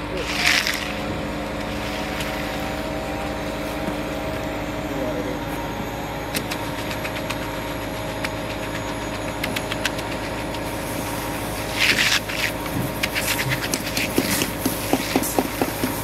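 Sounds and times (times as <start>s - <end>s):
engine humming: 0.0s - 16.0s
sharp clicks and scrapes: 11.7s - 16.0s.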